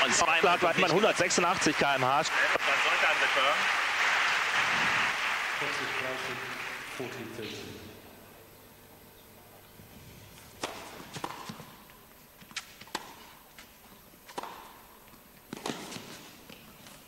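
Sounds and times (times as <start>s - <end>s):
tennis ball hit by rackets: 10.6s - 11.8s, 12.4s - 13.7s, 14.3s - 14.9s, 15.5s - 16.3s
tennis ball bouncing on court: 10.6s - 16.6s.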